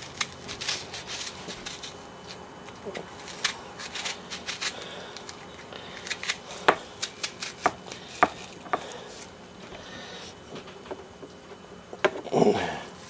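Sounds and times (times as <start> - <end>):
knife cutting onion: 0.0 - 10.1.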